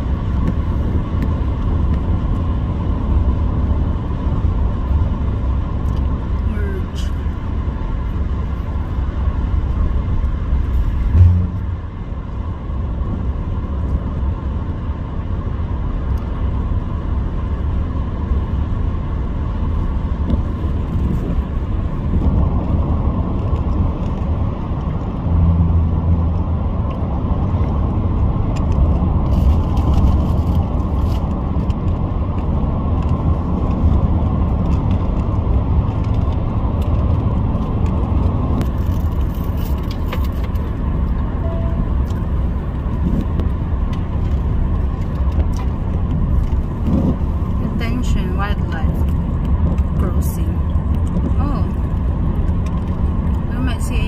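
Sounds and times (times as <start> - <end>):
car road and engine rumble: 0.0 - 54.0
sharp thump: 11.0 - 11.9.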